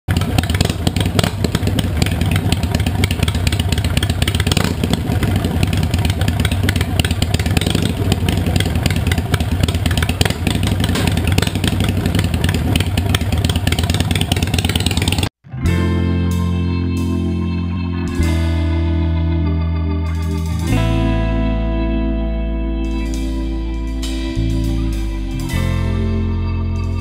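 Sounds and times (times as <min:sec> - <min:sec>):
motorcycle engine idling: 0:00.1 - 0:15.3.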